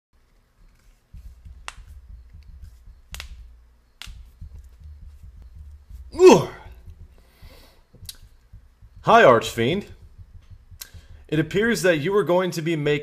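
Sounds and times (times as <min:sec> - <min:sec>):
hand snaps: 0:01.6 - 0:01.9, 0:03.0 - 0:04.7
low rumble: 0:04.2 - 0:12.0.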